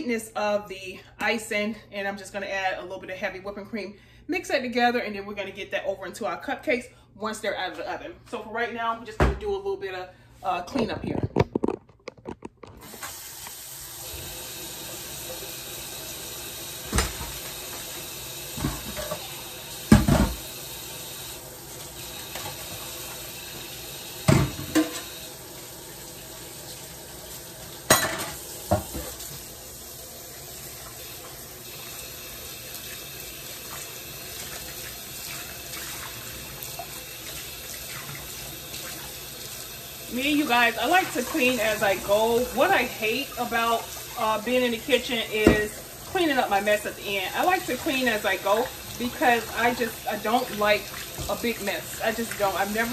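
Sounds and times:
tap running into a metal sink: 16.8s - 17.8s, 19.9s - 20.5s, 24.2s - 25.2s, 27.9s - 29.4s.

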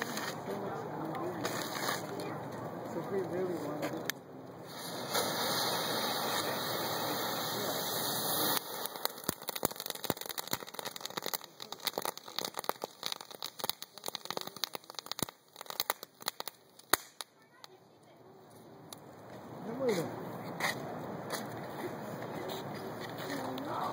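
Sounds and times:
firework fountain hissing: 0.0s - 2.4s, 4.6s - 17.8s
rapid crackling pops: 4.1s - 17.8s.

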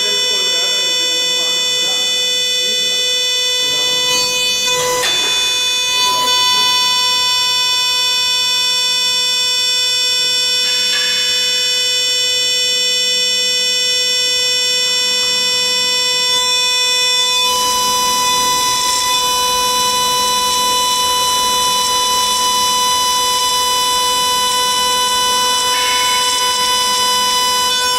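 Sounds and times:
hissing cutting noise: 0.0s - 27.9s
router spindle whining: 0.0s - 27.9s.

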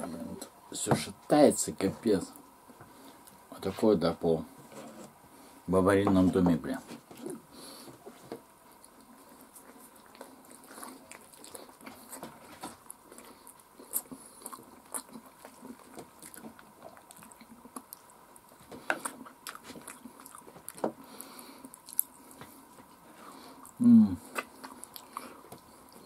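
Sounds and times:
person chewing and smacking: 8.1s - 26.0s.

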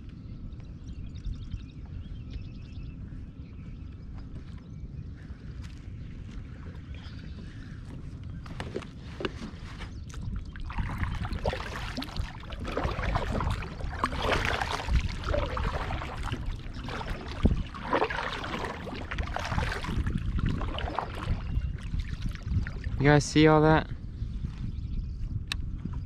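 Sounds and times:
kayak paddle strokes in water: 6.7s - 23.0s.

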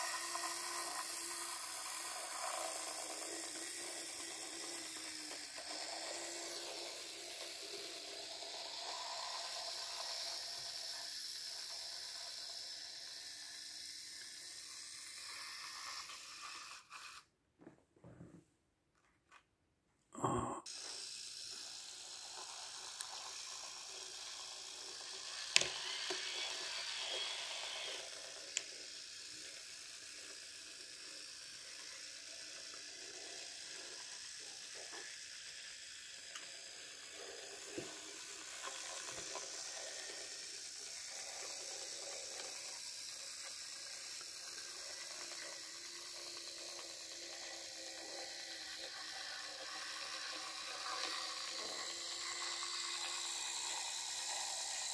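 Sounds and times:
model train motor whirring: 0.0s - 17.3s, 20.7s - 54.9s.

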